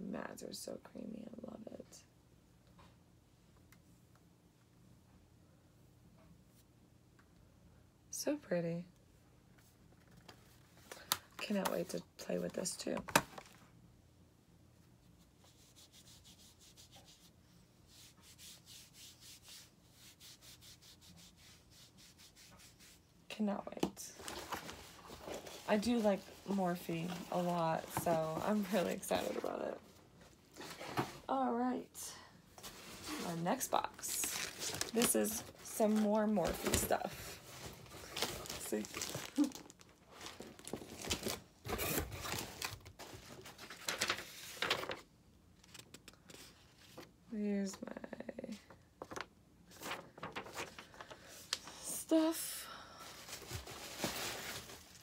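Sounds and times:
wipe rubbing on skin: 15.4s - 17.3s, 17.9s - 23.0s
cardboard and paper rustling: 24.1s - 31.3s, 32.6s - 45.0s, 49.0s - 52.3s, 53.0s - 55.0s.

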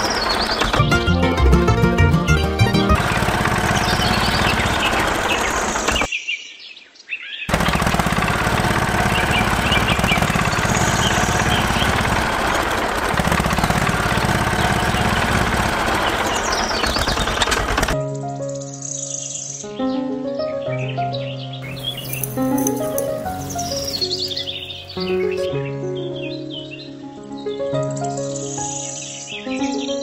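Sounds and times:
birds chirping: 0.0s - 0.8s, 2.3s - 7.8s, 8.9s - 18.0s, 21.6s - 27.0s
miniature tractor engine running: 0.0s - 6.1s, 7.5s - 18.0s, 21.7s - 25.5s.

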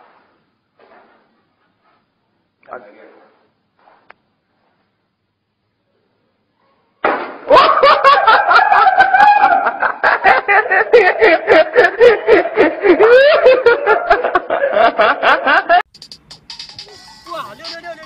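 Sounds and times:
hearty human laughter: 7.5s - 15.8s.

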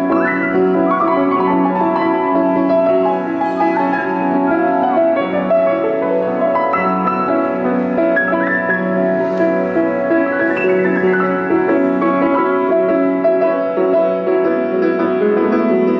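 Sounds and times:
solo grand piano: 0.0s - 15.9s.

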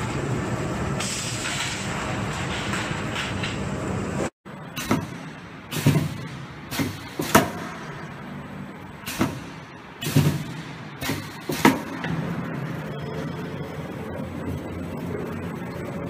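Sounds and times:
air hissing: 1.0s - 2.2s, 4.6s - 12.9s
punching machine clunks: 4.6s - 8.3s, 8.9s - 12.9s.

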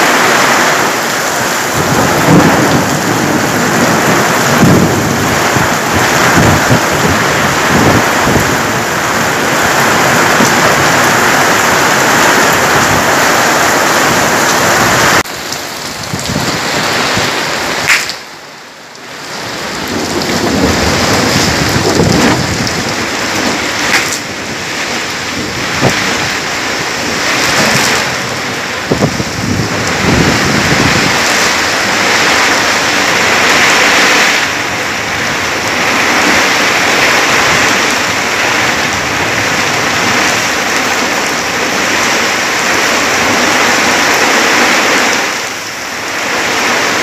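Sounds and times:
heavy rain pouring: 0.0s - 47.0s
sharp thunder cracks: 1.7s - 8.7s, 19.8s - 24.6s.

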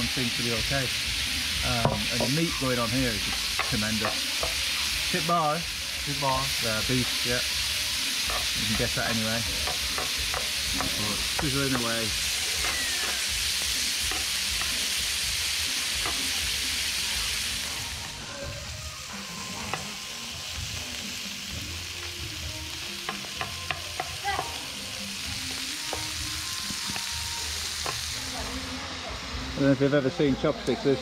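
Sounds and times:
meat sizzling on a griddle: 0.0s - 31.0s.

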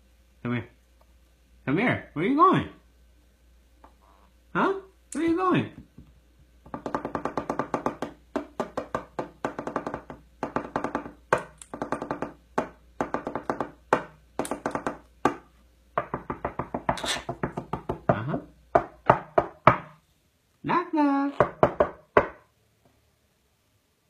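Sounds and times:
beak pecking on wooden table: 6.6s - 15.4s.

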